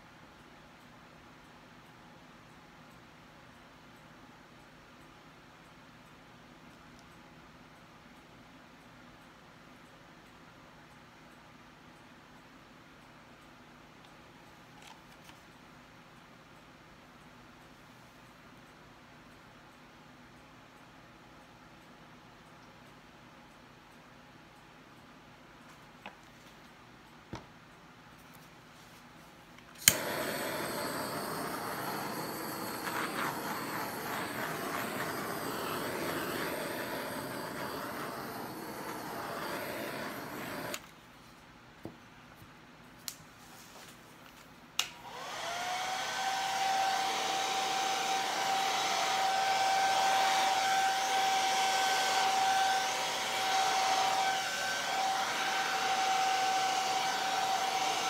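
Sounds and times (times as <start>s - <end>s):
hair dryer motor whine: 29.8s - 40.8s, 45.0s - 58.0s
rush of blown air: 29.9s - 40.8s.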